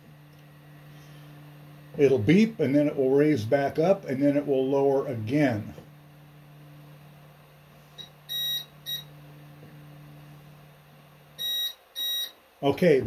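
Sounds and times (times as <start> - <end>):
stepper motor humming: 0.0 - 13.0
printer beeps: 8.0 - 9.1, 11.4 - 12.4.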